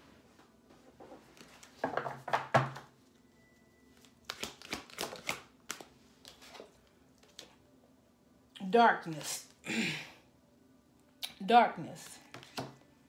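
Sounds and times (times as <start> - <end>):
cards being shuffled: 4.0 - 7.6, 12.3 - 12.8.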